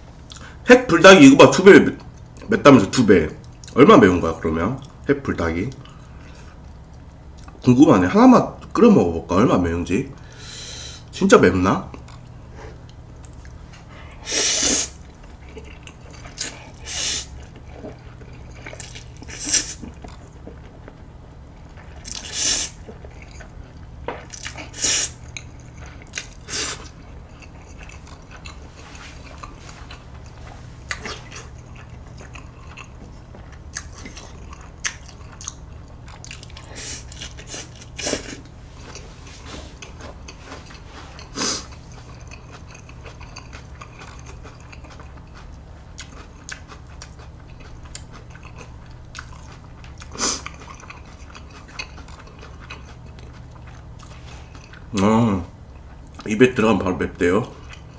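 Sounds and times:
steady low hum: 0:00.0 - 0:57.9
chewing: 0:11.9 - 0:14.2, 0:14.9 - 0:55.0, 0:55.7 - 0:56.3, 0:57.4 - 0:57.9.

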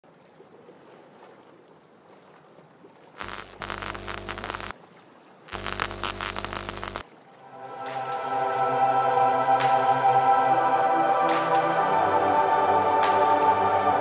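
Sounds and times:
electric crackling bursts: 0:03.2 - 0:04.7, 0:05.5 - 0:07.0
faint hiss: 0:03.2 - 0:04.7, 0:05.5 - 0:07.0
low hum: 0:03.2 - 0:04.7, 0:05.5 - 0:11.4.

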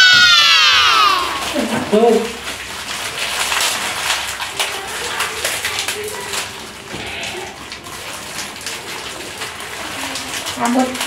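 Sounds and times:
plastic wrappers crinkling: 0:01.5 - 0:11.0.

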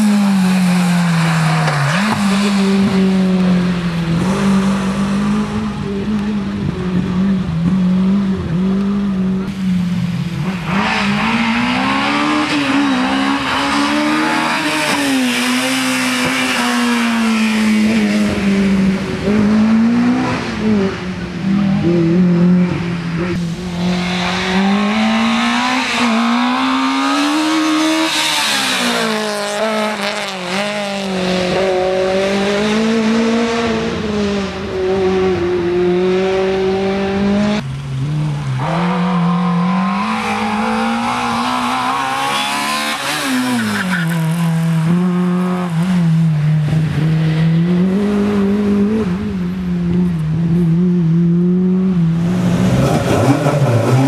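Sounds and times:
car engines revving high: 0:00.0 - 0:54.0.

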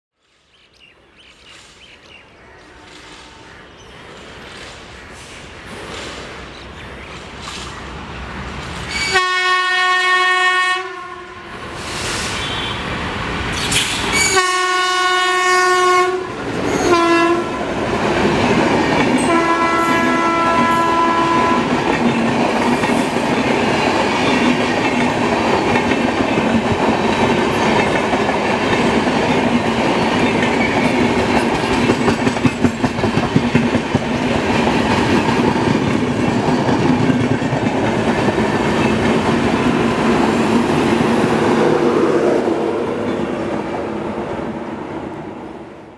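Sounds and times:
train coaches rumbling and clacking: 0:00.4 - 0:10.4, 0:11.0 - 0:45.9
train horn blasts: 0:02.6 - 0:03.6, 0:08.9 - 0:11.7, 0:12.3 - 0:12.9, 0:14.2 - 0:17.7, 0:19.2 - 0:21.7.

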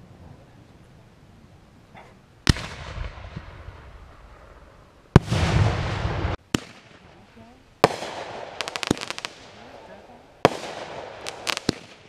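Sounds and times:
fireworks rumble: 0:00.0 - 0:12.0
fireworks bangs: 0:02.4 - 0:12.0.

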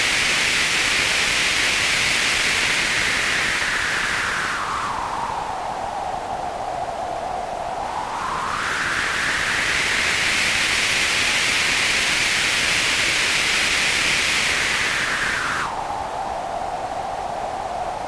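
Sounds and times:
white noise through wah pedal: 0:08.4 - 0:18.0.

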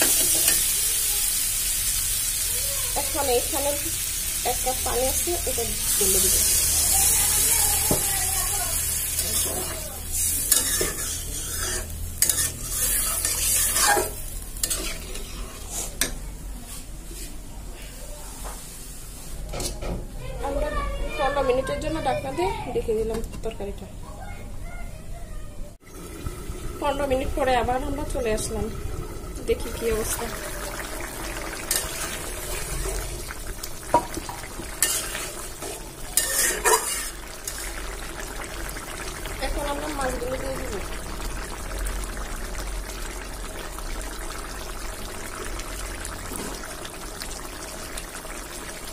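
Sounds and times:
curry simmering sizzle: 0:00.0 - 0:16.5, 0:25.8 - 0:48.9
metal spoon stirring in pot: 0:09.0 - 0:16.0, 0:31.0 - 0:33.1, 0:33.9 - 0:37.9
metal spatula scraping a pan: 0:09.1 - 0:16.1, 0:34.8 - 0:37.8.

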